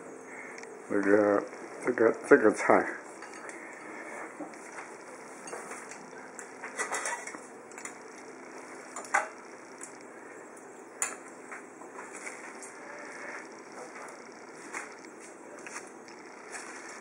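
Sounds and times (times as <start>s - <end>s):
metal tongs and dishes clinking: 3.2s - 3.6s, 5.4s - 8.0s, 11.0s - 11.3s.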